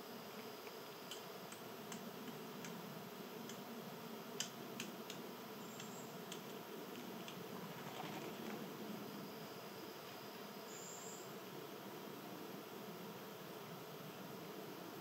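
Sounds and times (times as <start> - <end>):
faint background hiss: 0.0 - 15.0
birdseed cracking clicks and taps: 4.4 - 5.2.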